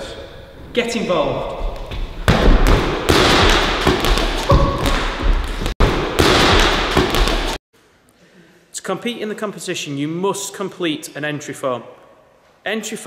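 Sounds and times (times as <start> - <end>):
balls bouncing on wooden floor: 1.6 - 7.6.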